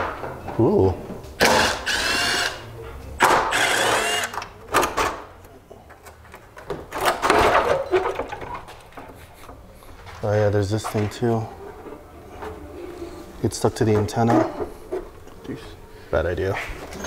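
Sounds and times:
cordless drill whining: 0:01.5 - 0:02.6, 0:03.5 - 0:04.4
knocks and rattles: 0:06.2 - 0:09.6.

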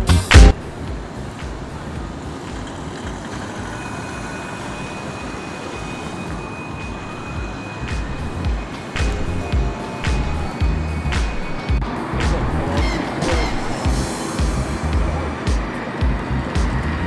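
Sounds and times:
cars driving past: 0:00.0 - 0:17.0
thin high tone: 0:02.9 - 0:16.0.

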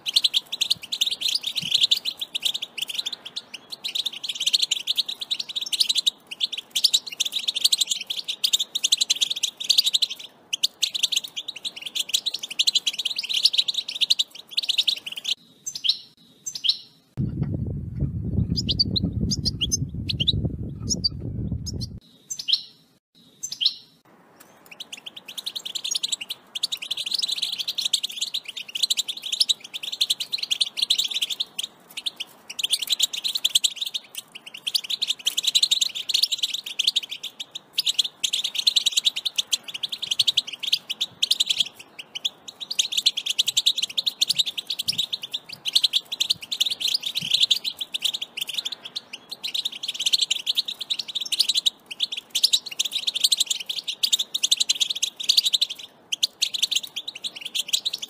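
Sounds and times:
goldfinch twittering song: 0:00.0 - 0:17.0, 0:18.4 - 0:22.8, 0:23.4 - 0:58.0
short bird calls: 0:00.0 - 0:17.0, 0:18.5 - 0:58.0.

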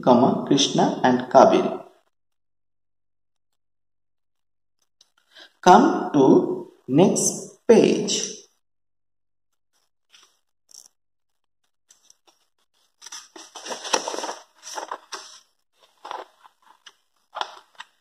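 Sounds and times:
paper page rustling: 0:10.0 - 0:11.0, 0:11.9 - 0:18.0.

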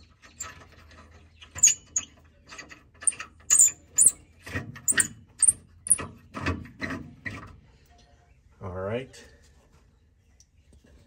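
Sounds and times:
nut squeaking on bolt: 0:00.0 - 0:06.4.

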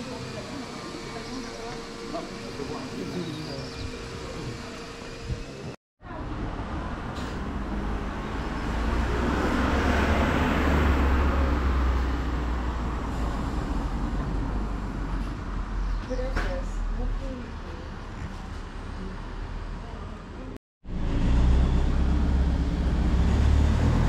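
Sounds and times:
vehicle passing by: 0:06.3 - 0:16.0, 0:20.8 - 0:24.0.

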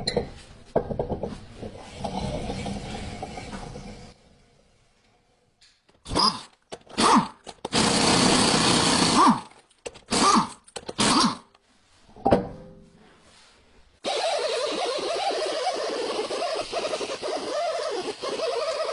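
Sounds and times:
impact wrench whirring: 0:06.0 - 0:11.4, 0:14.0 - 0:18.9.

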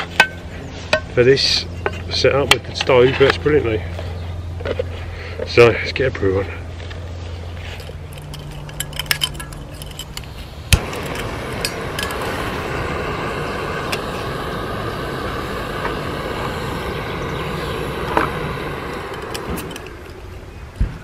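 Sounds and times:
gas burner hissing: 0:07.8 - 0:20.8
stove igniter clicks: 0:08.8 - 0:20.4.

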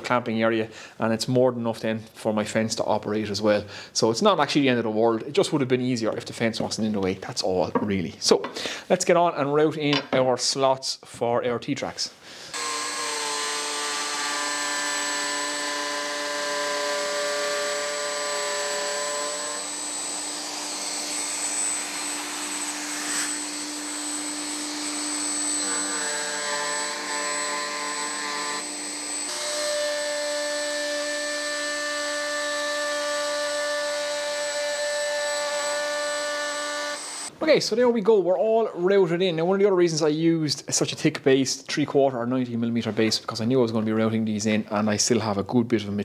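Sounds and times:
router whining: 0:12.5 - 0:37.3.

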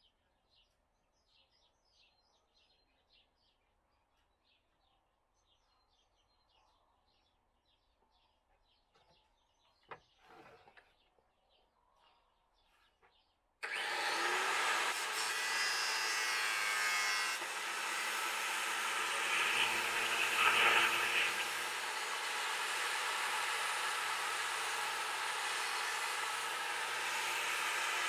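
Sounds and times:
handheld power tool running: 0:13.6 - 0:28.0.

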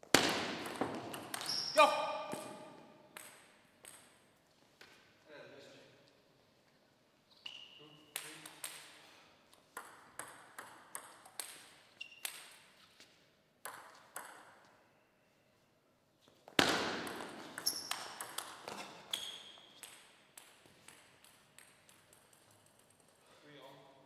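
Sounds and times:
ball pinging off bats and table: 0:00.1 - 0:05.0, 0:09.6 - 0:12.7, 0:13.6 - 0:14.8, 0:16.5 - 0:23.0
shoes squeaking on floor: 0:01.0 - 0:02.9, 0:07.1 - 0:08.1, 0:11.9 - 0:13.2, 0:17.4 - 0:19.9
table tennis ball clicking: 0:17.1 - 0:23.1.

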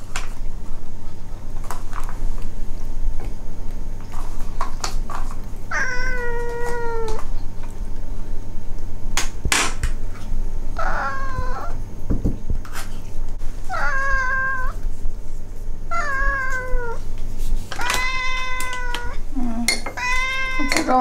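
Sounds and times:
cats meowing: 0:05.7 - 0:07.4, 0:10.8 - 0:11.8, 0:13.6 - 0:14.9, 0:15.9 - 0:17.1, 0:17.7 - 0:21.0.

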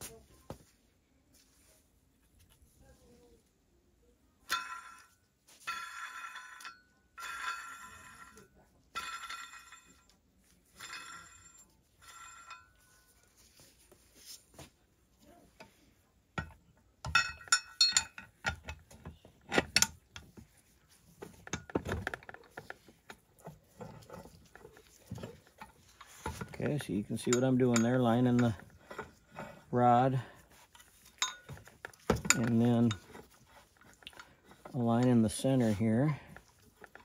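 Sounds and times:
metal tool clinking and ringing: 0:04.4 - 0:13.5, 0:16.4 - 0:20.3, 0:21.2 - 0:37.0
metal parts rattling: 0:17.0 - 0:20.1, 0:21.4 - 0:37.0.

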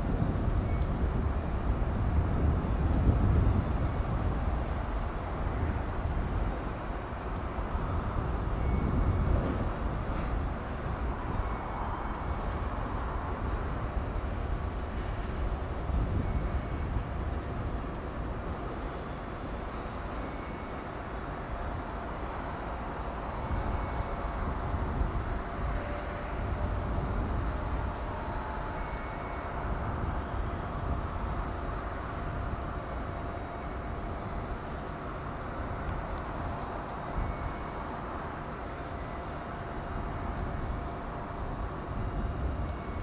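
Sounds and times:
faint machinery hum: 0:00.0 - 0:43.0.

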